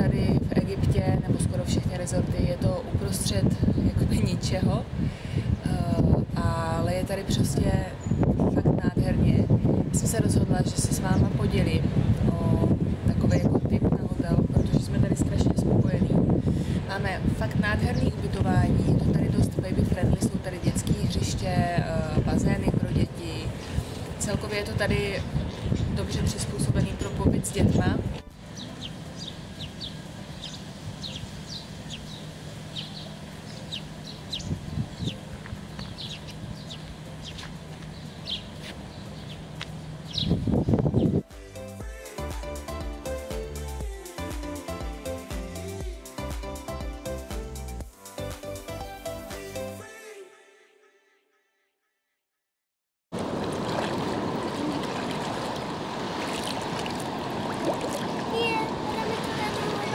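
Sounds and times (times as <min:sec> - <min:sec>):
small birds chirping: 0:25.0 - 0:27.8, 0:28.4 - 0:41.2
seawater lapping and washing: 0:53.2 - 0:59.9.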